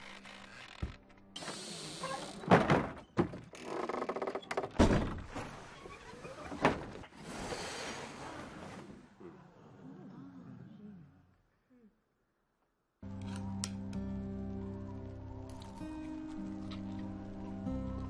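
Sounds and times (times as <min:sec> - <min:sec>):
faint voice: 0:09.2 - 0:12.0.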